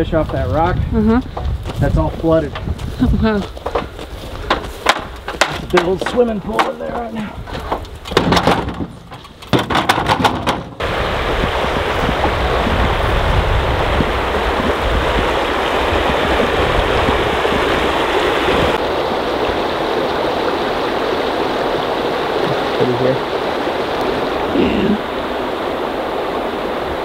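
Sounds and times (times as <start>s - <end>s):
creek water running over rocks: 0.0s - 27.0s
short knocks and rattles: 1.3s - 10.8s.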